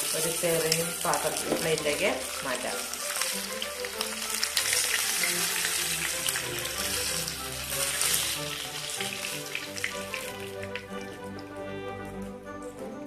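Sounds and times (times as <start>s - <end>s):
fish sizzling in hot oil: 0.0s - 11.6s
background music: 0.0s - 13.0s.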